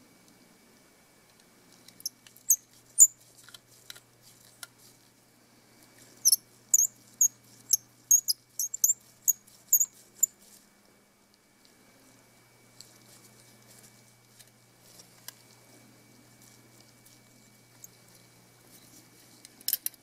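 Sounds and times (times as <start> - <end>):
screwdriver squeaking: 2.0 - 3.1, 6.2 - 10.3.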